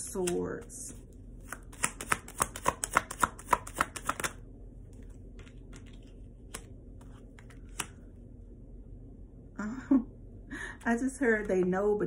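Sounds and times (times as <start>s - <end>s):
cards being shuffled: 0.2s - 8.1s
cards ticking and clicking: 1.4s - 4.4s.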